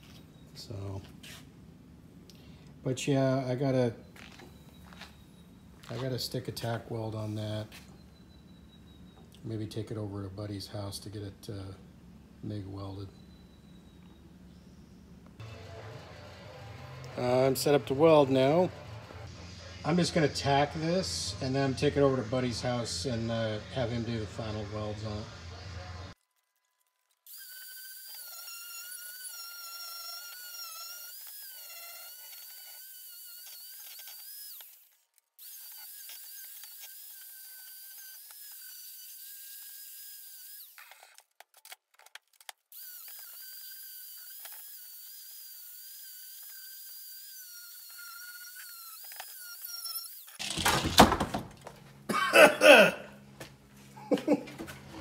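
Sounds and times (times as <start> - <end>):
angle grinder whining on steel: 15.4 - 19.3, 27.3 - 41.2, 42.7 - 50.4.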